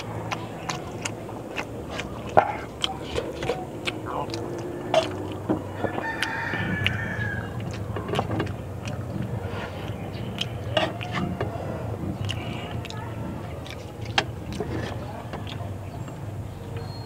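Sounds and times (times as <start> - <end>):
steady low rumble: 0.0 - 16.8
small clicks of eating: 0.0 - 17.0
rooster crowing: 5.6 - 7.8.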